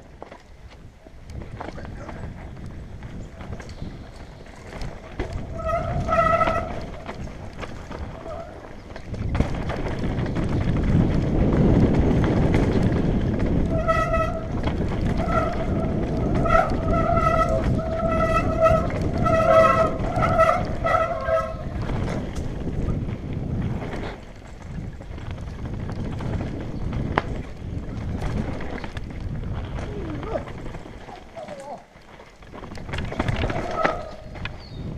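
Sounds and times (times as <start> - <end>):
bike tyres rumbling over dirt: 0.0 - 34.9
disc brakes squealing: 3.2 - 8.9, 13.7 - 21.8.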